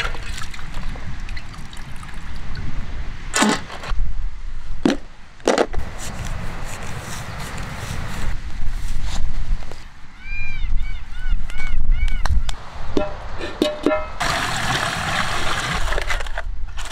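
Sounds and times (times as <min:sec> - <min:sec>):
water trickling and splashing: 0:00.0 - 0:02.8.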